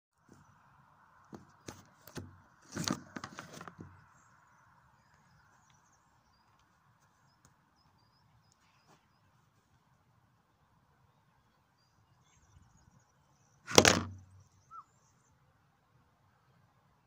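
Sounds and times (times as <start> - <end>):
steady outdoor hum: 0.1 - 17.0
phone knocking and rubbing on microphone: 1.4 - 3.9, 13.7 - 14.3
faint bird chirps: 3.9 - 9.7, 11.0 - 13.6, 14.2 - 15.4.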